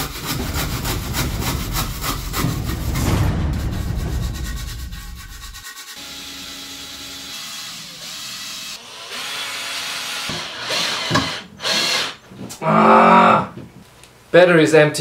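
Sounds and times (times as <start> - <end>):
cordless drill running: 6.0 - 12.2.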